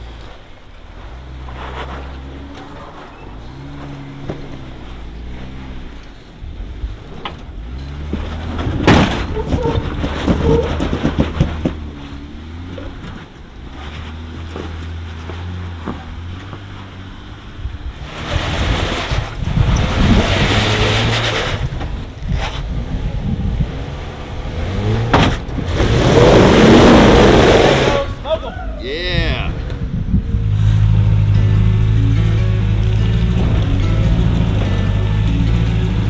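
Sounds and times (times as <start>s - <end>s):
jeep engine revving: 0.0s - 28.4s, 29.5s - 36.0s
wind on microphone: 17.7s - 24.9s, 29.0s - 31.3s.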